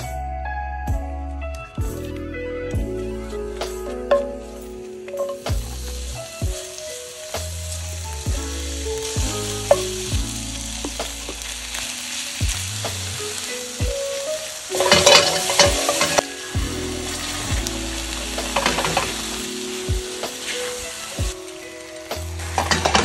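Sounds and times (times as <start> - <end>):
food sizzling in a frying pan: 2.8 - 23.0.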